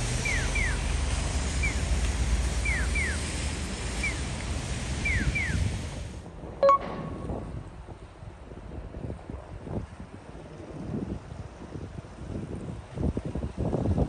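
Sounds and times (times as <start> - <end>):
ferry engine rumble: 0.0 - 8.8
sea: 0.0 - 14.0
wind on microphone: 3.7 - 14.0.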